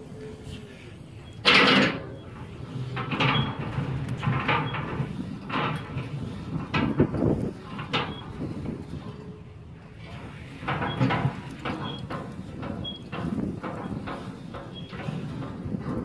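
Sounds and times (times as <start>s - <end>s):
crank cable paying out: 0.5s - 16.0s
steel grate scraping and rattling: 1.2s - 16.0s.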